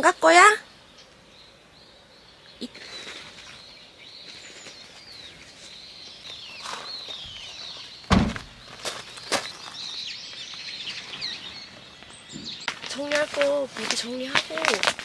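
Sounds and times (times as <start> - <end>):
small birds chirping: 0.0 - 15.0
sharp knocks: 8.1 - 8.5
car tailgate thump: 8.1 - 8.6.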